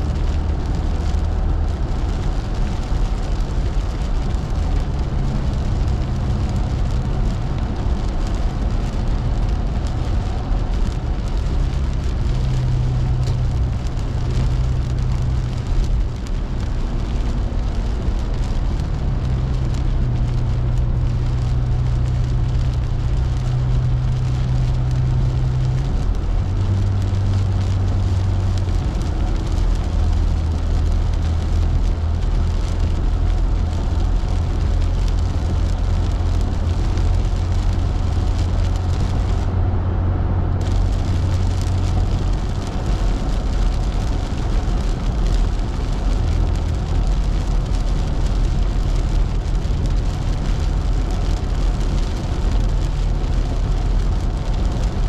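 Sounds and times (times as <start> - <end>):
engine and road drone: 0.0 - 55.0
rain on windshield: 0.0 - 55.0
tyres hissing on wet road: 0.0 - 55.0.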